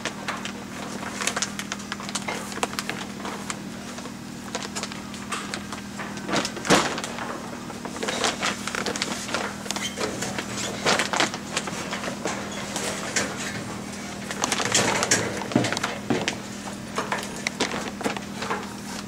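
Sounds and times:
plastic sheeting rustling: 0:06.2 - 0:19.0.

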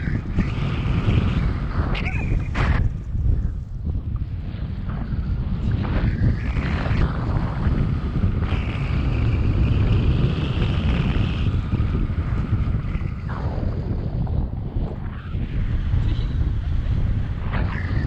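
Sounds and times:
wind rushing over microphone: 0:00.0 - 0:18.0.

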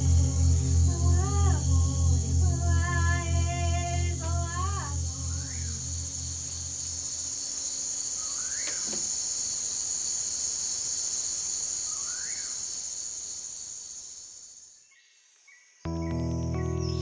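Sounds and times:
rising and falling call: 0:00.0 - 0:07.6
insects chorus: 0:00.0 - 0:17.0.

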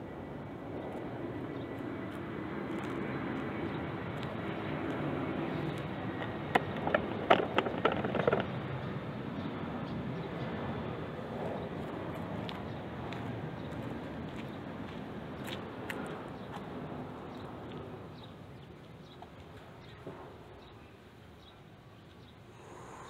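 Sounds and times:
distant engine rumble: 0:01.5 - 0:18.1.

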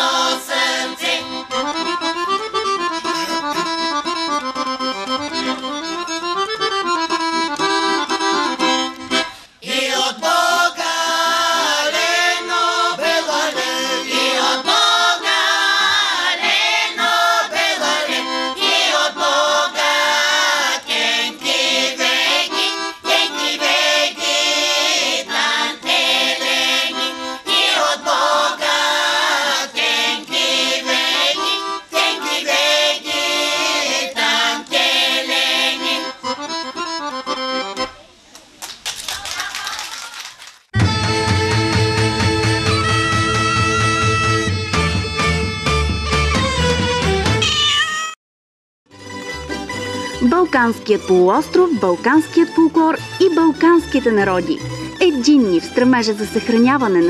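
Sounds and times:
women's choir singing: 0:00.0 - 0:01.5, 0:09.6 - 0:36.2
piano accordion: 0:00.0 - 0:38.0, 0:40.8 - 0:47.5, 0:48.9 - 0:57.0.

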